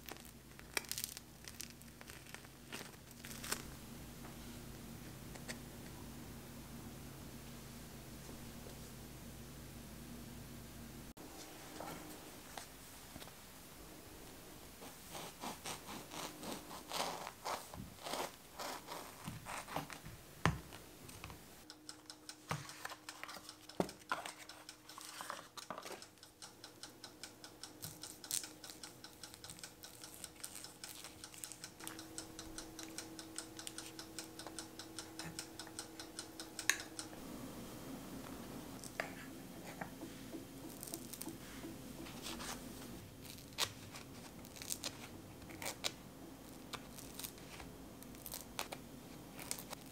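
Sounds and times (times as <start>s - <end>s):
knife sawing through bagel: 14.8s - 19.8s
spreader scraping cream cheese: 14.8s - 20.0s
knife slicing cream cheese: 15.1s - 20.0s.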